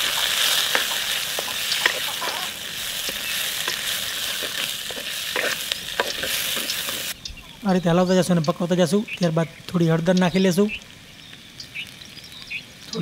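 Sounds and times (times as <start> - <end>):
vegetables sizzling in hot oil: 0.0 - 7.8.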